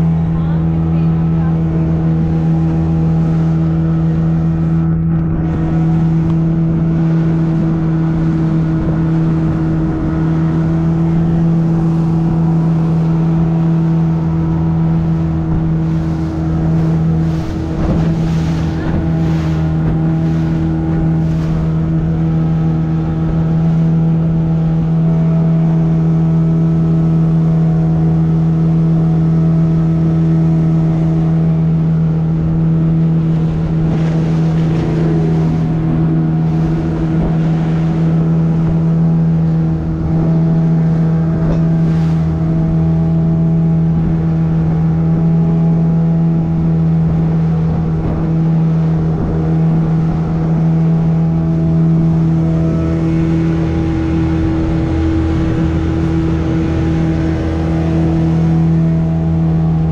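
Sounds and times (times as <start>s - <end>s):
motorboat engine droning: 0.0s - 59.9s
water splashing against hull: 0.0s - 59.9s.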